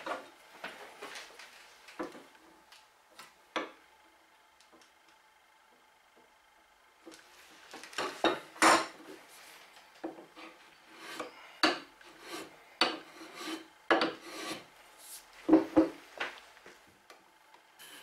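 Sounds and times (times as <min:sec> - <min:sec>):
block plane shaving wood: 0:10.4 - 0:15.2.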